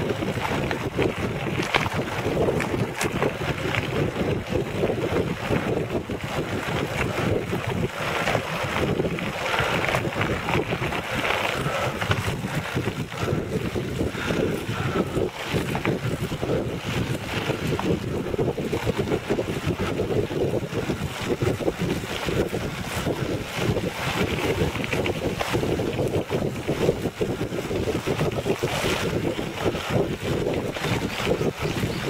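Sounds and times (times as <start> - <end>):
tyres rolling over gravel: 0.0 - 32.0
wind buffeting microphone: 0.0 - 32.0.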